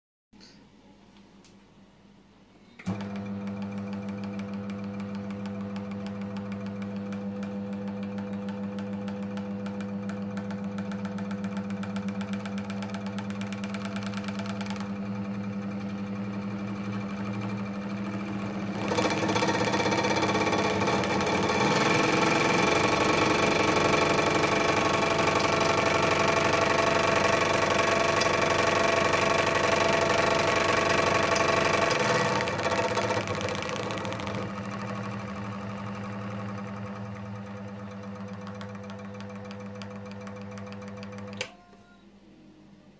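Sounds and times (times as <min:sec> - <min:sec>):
paint shaker motor hum: 0:03.1 - 0:41.4.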